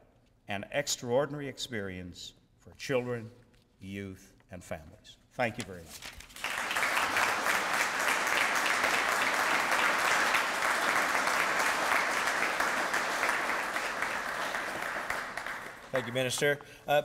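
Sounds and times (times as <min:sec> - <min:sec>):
audience applauding: 0:06.4 - 0:16.4.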